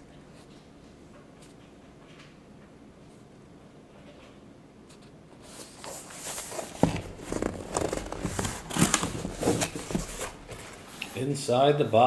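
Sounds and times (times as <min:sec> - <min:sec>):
cardboard rubbing and scraping: 0:05.4 - 0:11.0
cardboard flaps knocking: 0:06.5 - 0:10.8.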